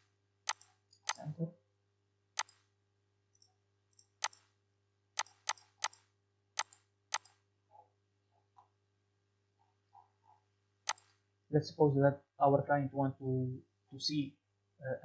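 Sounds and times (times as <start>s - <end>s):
computer mouse clicking: 0.4s - 1.3s, 2.4s - 2.6s, 4.0s - 4.5s, 5.2s - 7.4s, 10.8s - 11.2s.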